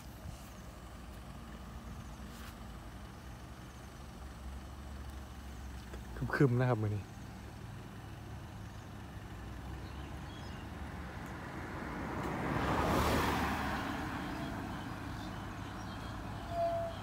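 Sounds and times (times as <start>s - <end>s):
truck diesel engine drone: 0.0s - 17.0s
car passing: 4.4s - 17.0s.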